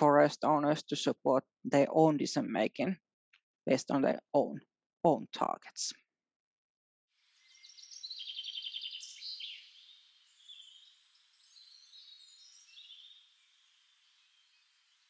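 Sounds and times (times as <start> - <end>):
bird trill: 7.4 - 15.0
bird warbling and chirps: 7.4 - 15.0.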